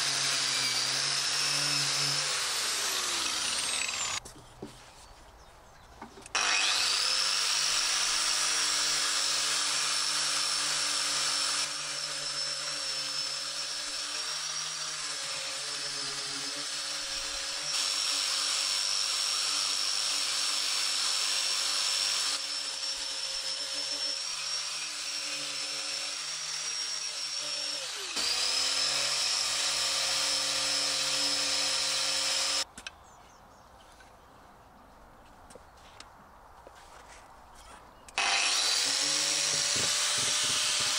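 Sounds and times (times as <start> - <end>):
angle grinder whine: 0.0 - 4.2, 6.3 - 8.4, 22.2 - 32.6, 38.2 - 40.9.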